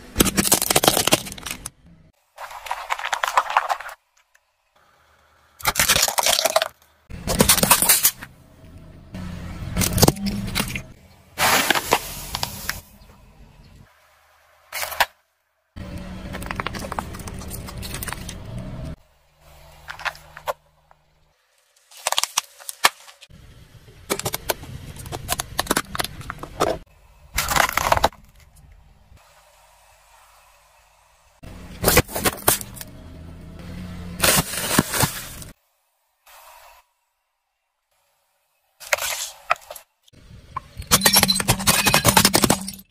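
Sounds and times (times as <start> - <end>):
tyre crushing small objects: 0.1 - 1.8, 2.4 - 4.3, 5.6 - 8.3, 16.2 - 18.9, 21.7 - 23.3, 24.1 - 28.6, 31.8 - 32.9, 34.2 - 35.6, 40.6 - 42.9.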